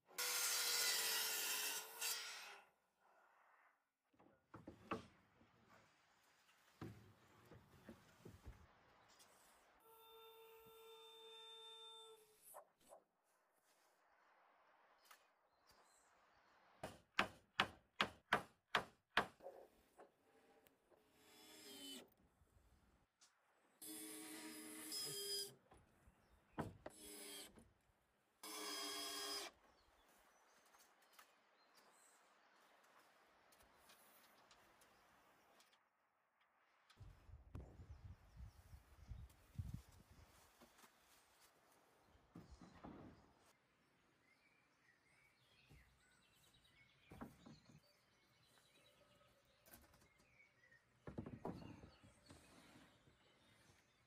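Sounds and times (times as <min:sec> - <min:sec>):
faint birdsong: 0:36.8 - 0:54.0.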